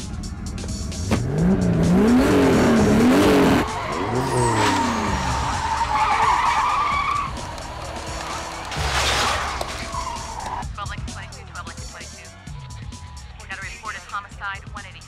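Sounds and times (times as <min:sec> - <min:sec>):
car engines revving hard: 0:00.1 - 0:10.7.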